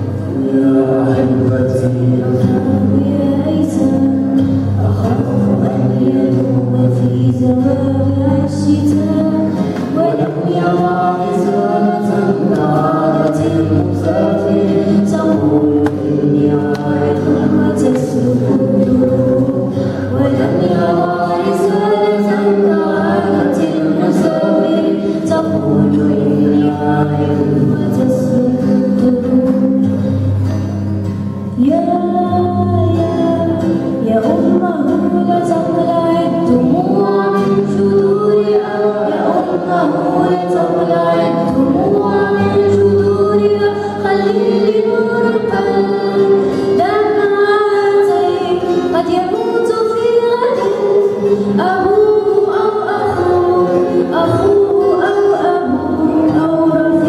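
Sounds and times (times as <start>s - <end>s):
acoustic guitar: 0.0s - 57.0s
girl singing into microphone: 0.0s - 57.0s.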